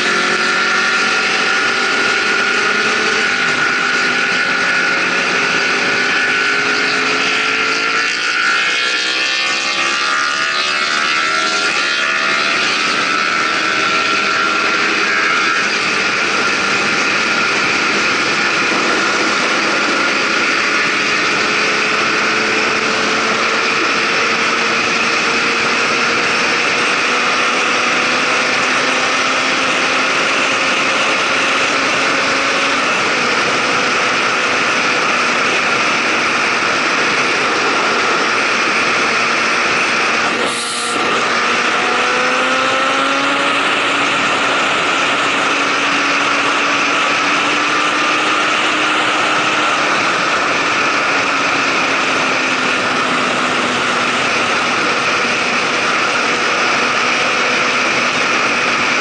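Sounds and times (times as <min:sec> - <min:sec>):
motorcycle engine accelerating: 0:00.0 - 0:59.0
wind rush on microphone: 0:12.3 - 0:59.0.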